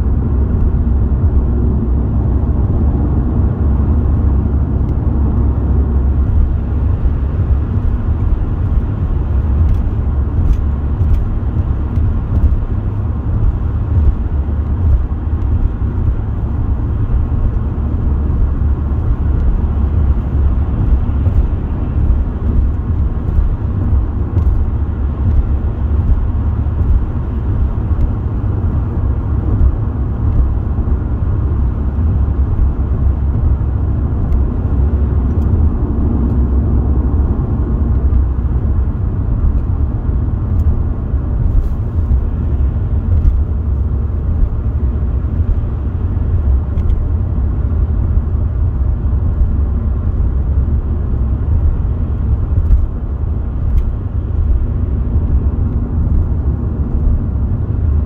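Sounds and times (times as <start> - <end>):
car interior road rumble: 0.0 - 58.0.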